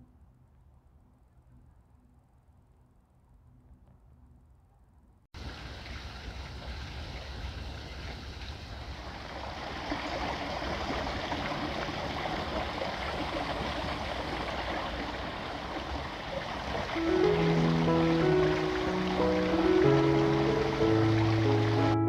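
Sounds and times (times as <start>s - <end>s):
stream splashing over rocks: 5.4s - 22.0s
music notes: 17.0s - 22.0s.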